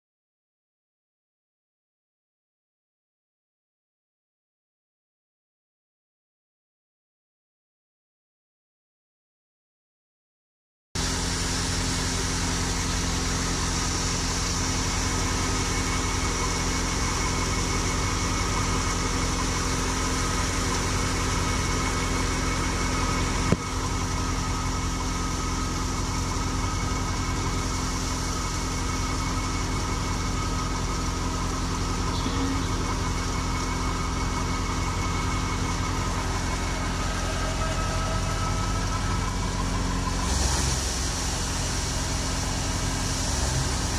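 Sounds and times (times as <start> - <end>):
threshing drum droning: 11.0 - 43.9
tractor diesel engine running: 11.0 - 43.9.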